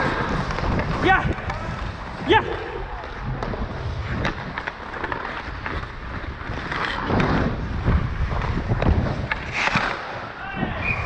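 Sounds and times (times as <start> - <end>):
wind on microphone: 0.0 - 4.6, 5.8 - 9.8
skates scraping on ice: 0.0 - 11.0.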